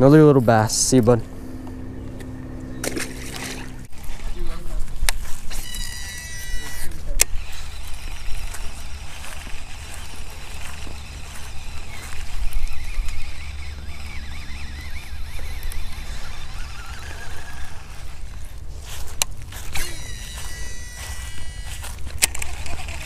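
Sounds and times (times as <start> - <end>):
wind rumbling on microphone: 1.2 - 23.0
wavering high-pitched call: 5.5 - 18.0, 19.7 - 22.0.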